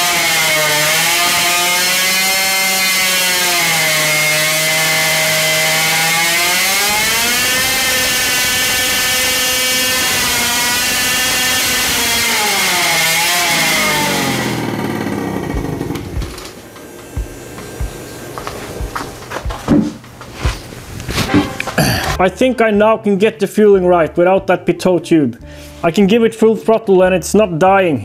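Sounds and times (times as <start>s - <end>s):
two-stroke engine revving: 0.0s - 19.0s
engine knocks stopping: 14.6s - 20.7s.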